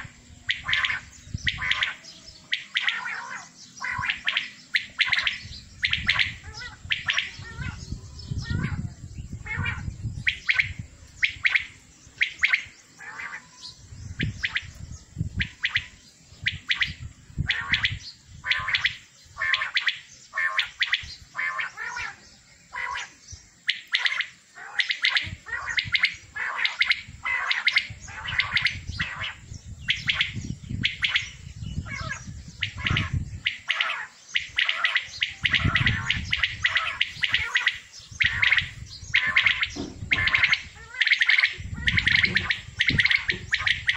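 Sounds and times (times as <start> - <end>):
quails calling: 0.0 - 43.9.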